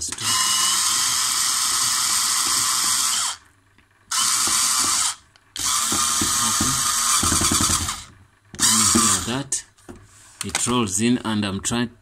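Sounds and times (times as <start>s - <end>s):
electric screwdriver whirring: 0.1s - 3.4s, 4.1s - 9.4s.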